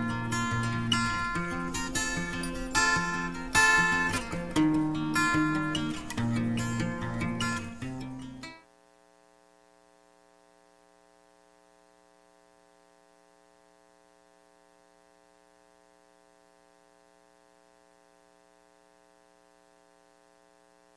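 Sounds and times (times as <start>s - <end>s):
faint electrical hum: 0.0s - 20.9s.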